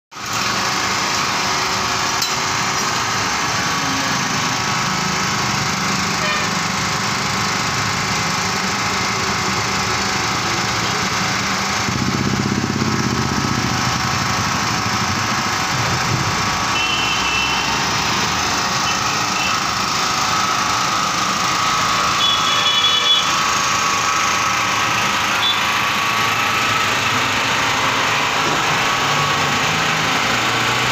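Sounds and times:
portable generator running: 0:00.2 - 0:30.9.

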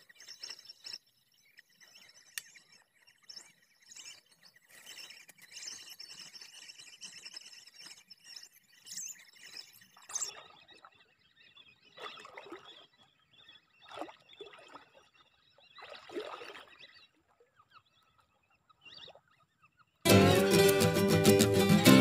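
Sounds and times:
person wading through water: 0:11.9 - 0:12.9, 0:13.8 - 0:17.1.

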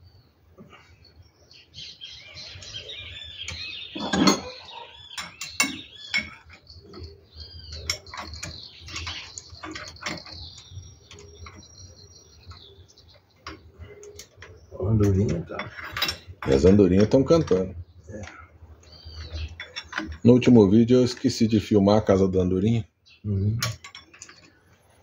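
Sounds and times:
swallows twittering: 0:00.0 - 0:25.0
metal tools clinking: 0:03.4 - 0:12.7, 0:13.4 - 0:18.4, 0:19.0 - 0:21.4, 0:23.6 - 0:25.0.

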